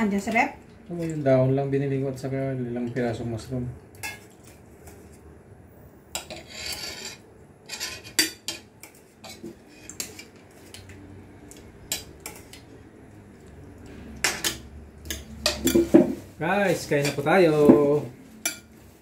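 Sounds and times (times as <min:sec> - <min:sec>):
cutlery clinking and scraping: 0:04.0 - 0:05.2, 0:06.1 - 0:12.6, 0:14.2 - 0:18.9.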